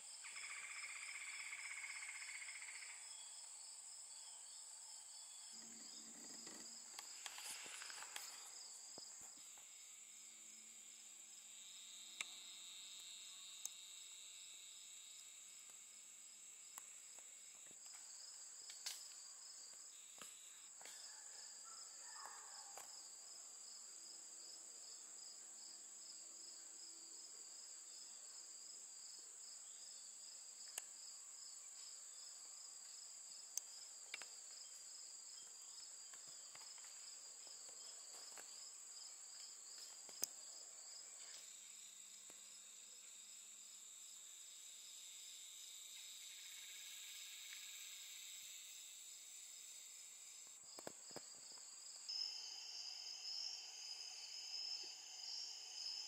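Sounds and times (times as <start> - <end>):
pulsing insect trill: 0.0 - 16.6, 37.8 - 56.0
high-pitched insect drone: 0.1 - 4.6, 41.0 - 50.9, 51.8 - 56.0.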